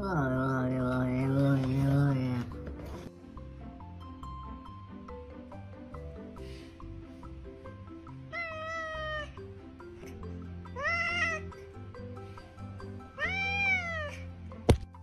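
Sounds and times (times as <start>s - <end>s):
background music: 0.0s - 15.0s
cat meowing: 8.3s - 9.4s, 10.7s - 11.6s, 13.2s - 14.3s.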